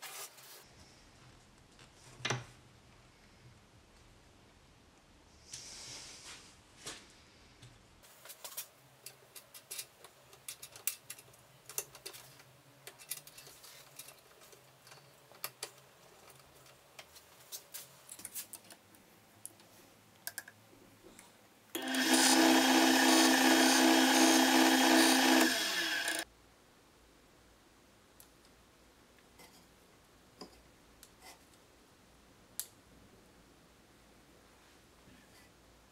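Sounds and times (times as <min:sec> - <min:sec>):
lathe motor whining: 0:21.8 - 0:26.2.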